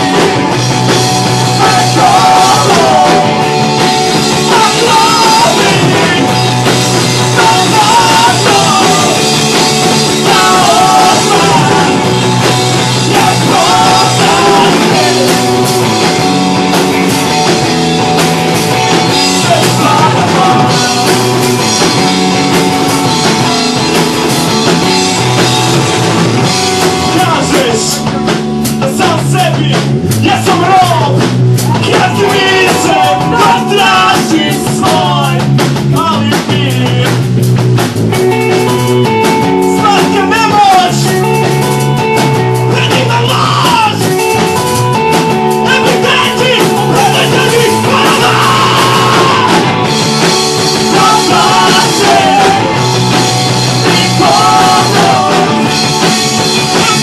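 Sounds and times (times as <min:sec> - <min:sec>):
drum kit: 0:00.0 - 0:57.0
electric guitars: 0:00.0 - 0:57.0
person singing: 0:01.5 - 0:03.5, 0:04.4 - 0:06.5, 0:07.2 - 0:12.1, 0:12.8 - 0:15.8, 0:19.2 - 0:21.4, 0:28.8 - 0:37.2, 0:45.6 - 0:50.0, 0:50.6 - 0:57.0.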